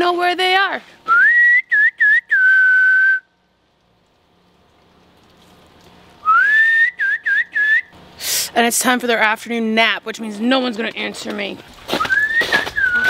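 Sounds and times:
person whistling a call: 1.1 - 3.3, 6.2 - 7.9, 12.0 - 13.0.

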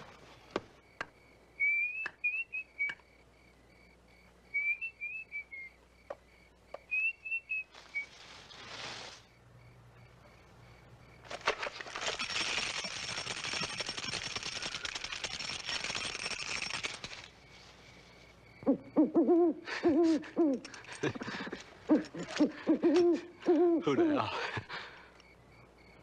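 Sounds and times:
crackling hiss: 0.0 - 23.8
owl hooting: 18.6 - 20.6, 21.8 - 24.0.

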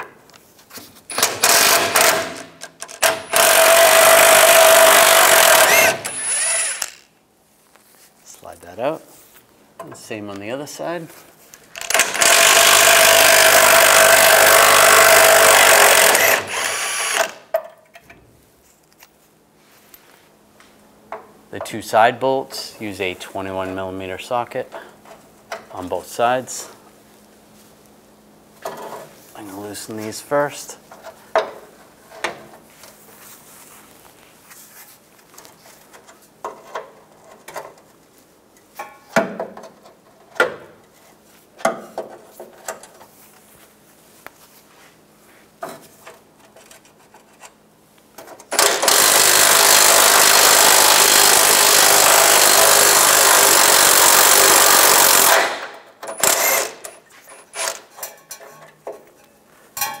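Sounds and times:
cordless power tool running: 3.0 - 7.0, 11.9 - 17.4, 48.6 - 55.6
hand ratchet clicking: 11.8 - 17.4.

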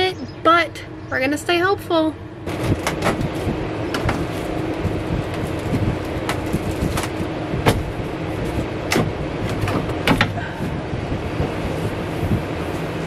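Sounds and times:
steady rushing noise: 2.0 - 13.0.

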